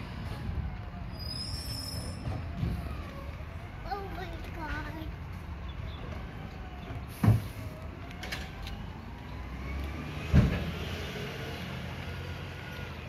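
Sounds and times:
garbage truck engine rumble: 0.0s - 13.0s.

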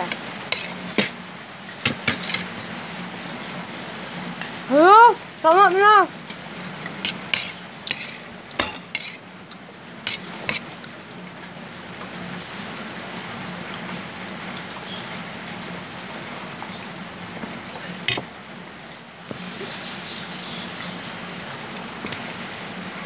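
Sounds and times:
steady background hiss: 0.0s - 23.0s
cutlery clinking against plates: 0.1s - 1.2s, 1.9s - 2.5s, 6.3s - 9.2s.

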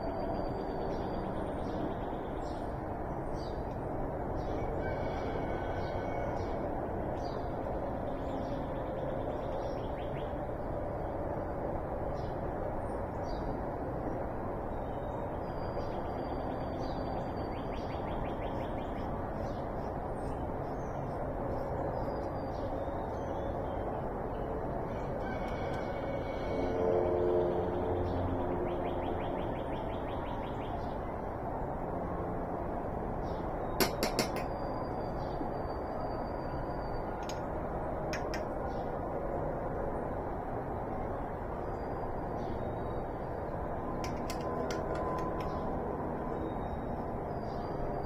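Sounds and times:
birds chirping: 44.0s - 48.0s.

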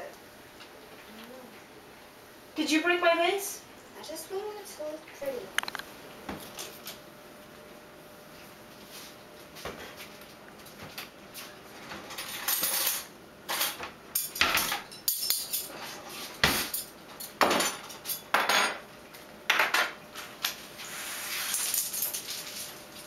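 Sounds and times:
metal spoons clattering on countertop: 12.1s - 18.8s, 19.5s - 20.6s.

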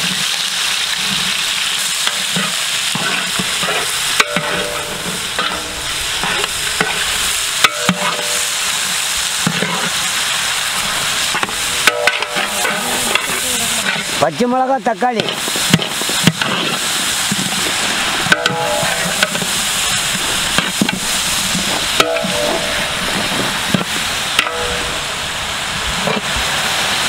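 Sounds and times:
onions sizzling in oil: 0.0s - 27.0s
ladle scraping metal pot: 10.8s - 14.2s, 18.2s - 25.0s.

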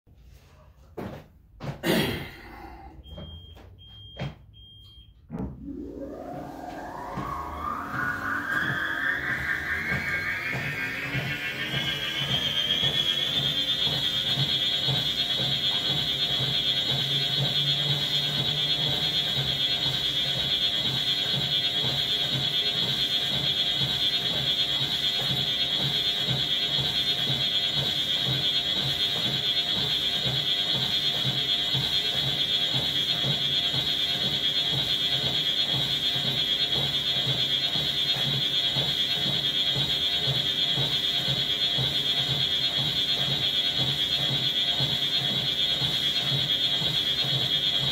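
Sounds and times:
footsteps on treadmill belt: 0.4s - 2.3s, 3.1s - 47.9s
treadmill motor whine: 1.0s - 47.9s.

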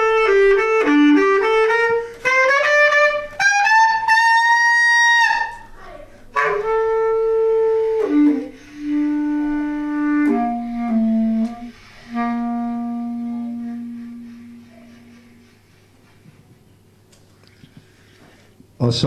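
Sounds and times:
bass clarinet solo: 0.0s - 15.5s.

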